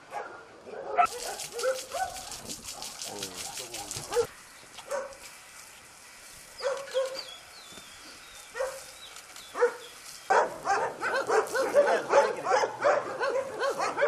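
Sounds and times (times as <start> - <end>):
dogs barking: 0.1 - 5.2, 6.6 - 7.3, 8.5 - 8.9, 9.5 - 14.0.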